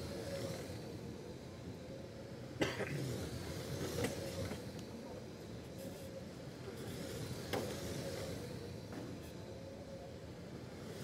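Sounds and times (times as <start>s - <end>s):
hall hum and low rumble: 0.0s - 11.0s.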